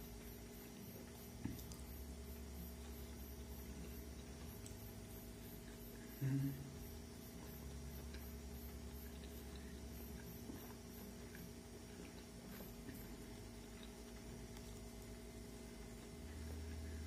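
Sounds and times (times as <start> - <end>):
man chewing: 0.0 - 17.0
man humming: 6.1 - 6.8.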